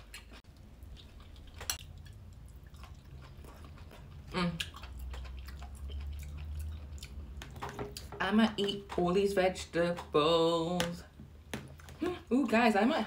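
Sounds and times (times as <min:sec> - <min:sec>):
chewing food: 0:00.0 - 0:09.1.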